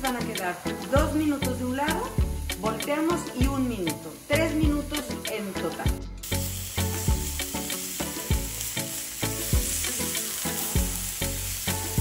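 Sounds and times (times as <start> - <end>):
scallops sizzling in a pan: 0.1 - 5.6, 6.2 - 12.0
low thumping beat: 2.0 - 2.6, 6.8 - 7.5.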